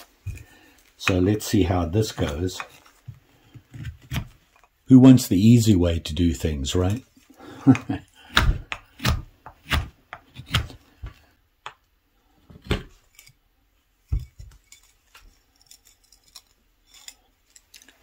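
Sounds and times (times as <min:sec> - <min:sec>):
knife shaving wood: 0:00.0 - 0:04.8, 0:06.4 - 0:11.4, 0:14.1 - 0:18.0.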